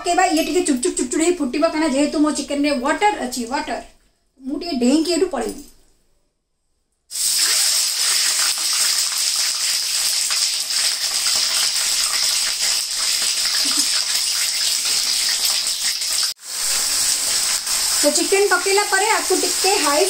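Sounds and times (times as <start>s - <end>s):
chicken sizzling in hot oil: 7.1s - 20.0s.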